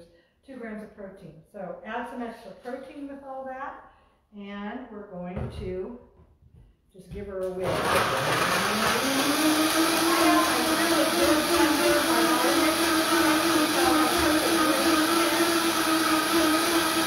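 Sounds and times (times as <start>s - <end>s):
blender motor whining: 7.6s - 17.0s.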